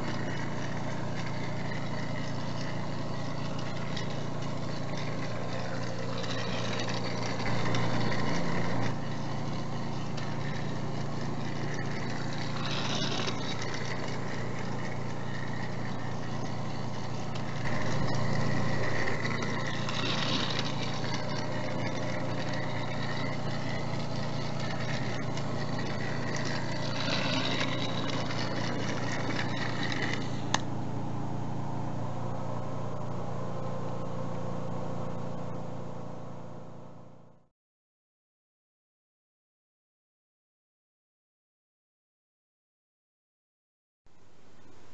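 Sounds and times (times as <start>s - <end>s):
bright rattle: 0.0s - 30.7s
toy train motor whirring: 0.0s - 30.7s.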